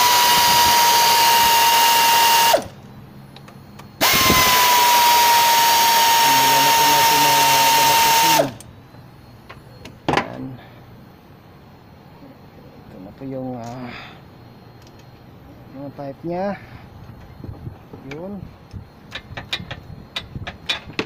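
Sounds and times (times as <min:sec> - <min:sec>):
electric ratchet wrench whining: 0:00.0 - 0:02.8, 0:04.0 - 0:08.7.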